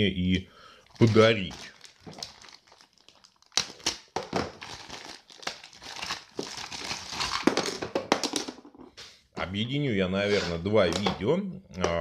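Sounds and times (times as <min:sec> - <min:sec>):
plastic bag crinkling: 0:00.8 - 0:07.8.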